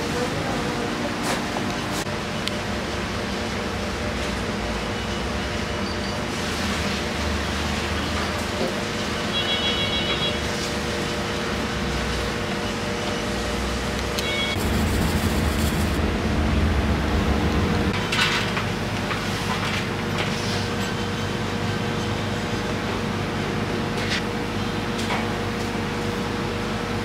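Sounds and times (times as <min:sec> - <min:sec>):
kitchen machine hum: 0:00.0 - 0:27.0
low rumble: 0:14.6 - 0:18.0.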